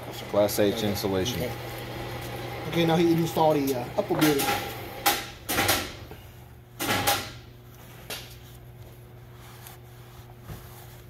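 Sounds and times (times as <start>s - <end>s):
steady low hum: 0.0s - 11.0s
rustling scrape: 7.6s - 11.0s.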